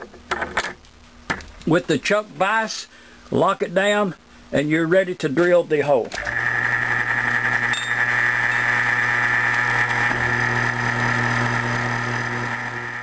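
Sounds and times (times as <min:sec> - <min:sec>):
mill-drill drilling into metal: 0:06.2 - 0:13.0.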